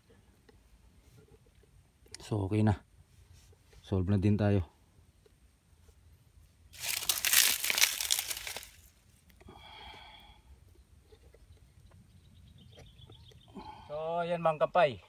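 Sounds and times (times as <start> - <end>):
loud crinkling rustle: 6.7 - 9.0.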